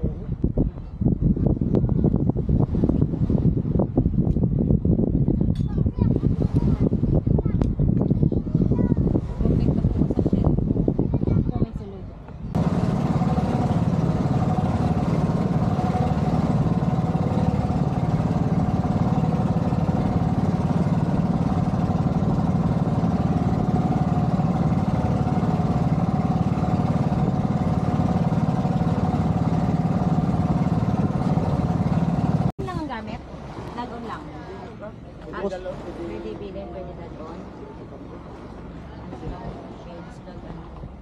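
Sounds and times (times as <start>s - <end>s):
boat engine droning: 11.5s - 41.0s.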